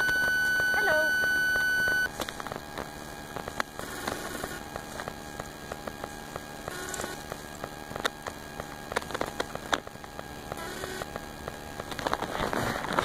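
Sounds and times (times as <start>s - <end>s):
bees buzzing: 0.0s - 9.6s.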